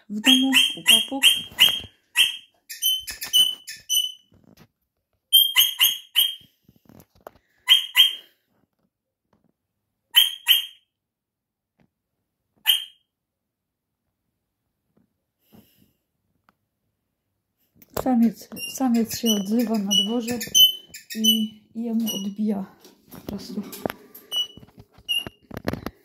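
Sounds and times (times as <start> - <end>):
parrot calling shrilly: 0.2 - 4.2, 5.4 - 6.5, 7.6 - 8.3, 10.1 - 10.8.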